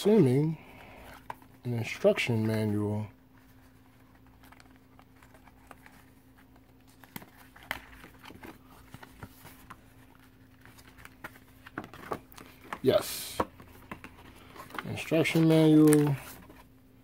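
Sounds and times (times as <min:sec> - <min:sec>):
paper rustling and tapping: 0:06.7 - 0:16.6.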